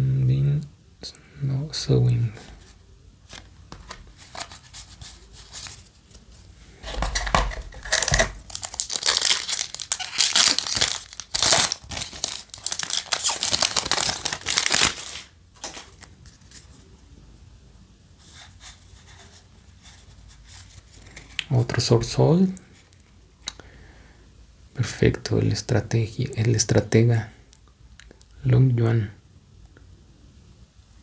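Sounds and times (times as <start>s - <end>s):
cards rustling: 2.4s - 16.9s
foil wrapper tearing and crinkling: 6.9s - 16.1s.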